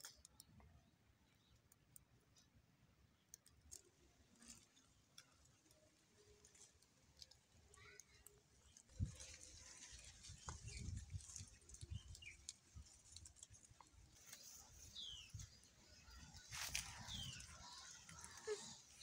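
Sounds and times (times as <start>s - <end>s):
hands rustling dry leaves: 8.5s - 19.0s.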